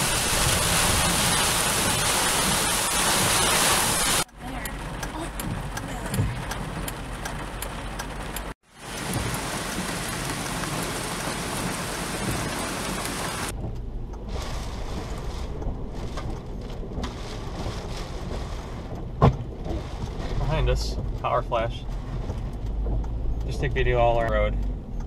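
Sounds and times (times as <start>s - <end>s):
heavy rain hiss: 0.0s - 4.3s, 8.7s - 13.5s
car driving on wet road: 0.0s - 25.0s.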